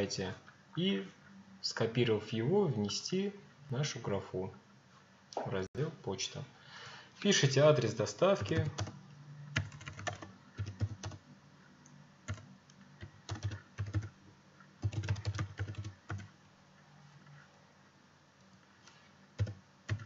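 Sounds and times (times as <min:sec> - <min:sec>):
typing on computer keyboard: 0:08.4 - 0:09.0, 0:09.6 - 0:11.2, 0:12.3 - 0:14.1, 0:14.8 - 0:16.3, 0:19.4 - 0:20.0.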